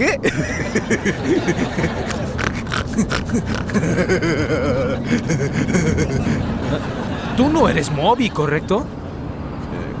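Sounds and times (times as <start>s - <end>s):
man laughing heartily: 0.0s - 7.6s.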